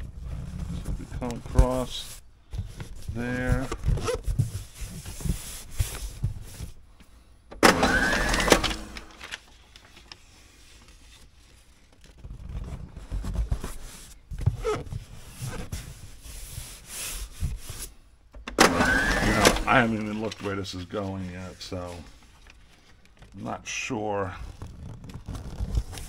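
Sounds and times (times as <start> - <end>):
tape rustling on cardboard: 0.0 - 7.2, 9.0 - 18.1, 24.2 - 26.0
tape pulled off roll screeching: 7.6 - 9.3, 18.6 - 20.0.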